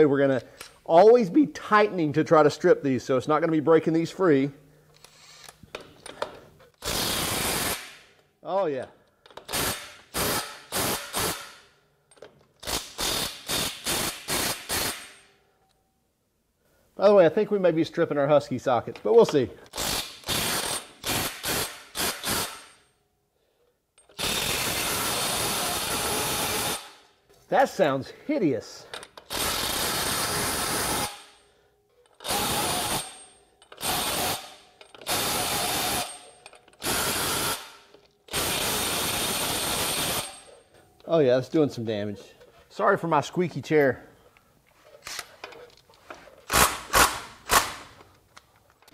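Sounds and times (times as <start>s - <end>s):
impact wrench rattling bursts: 5.0s - 8.2s, 9.3s - 15.3s, 19.3s - 22.9s, 24.0s - 27.1s, 28.9s - 40.7s, 45.0s - 48.2s
impact wrench hammering: 32.2s - 40.6s, 46.5s - 48.0s.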